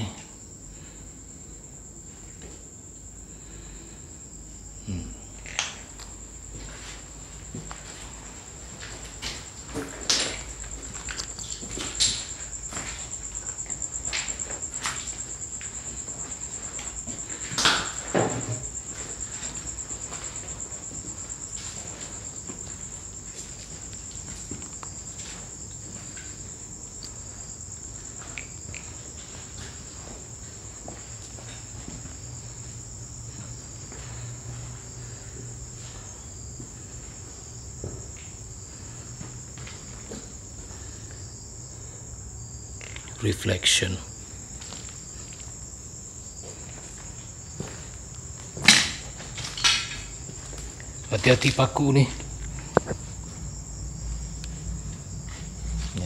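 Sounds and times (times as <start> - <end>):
cricket trilling: 0.0 - 56.0
footsteps crunching on debris: 6.5 - 15.8, 46.3 - 53.4.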